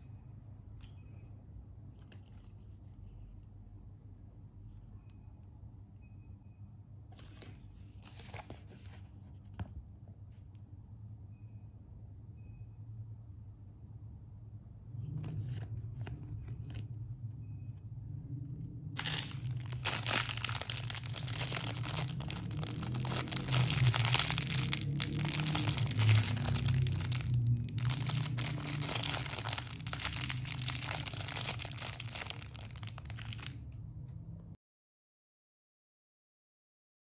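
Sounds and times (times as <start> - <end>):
plastic bag crinkling: 19.0 - 33.6.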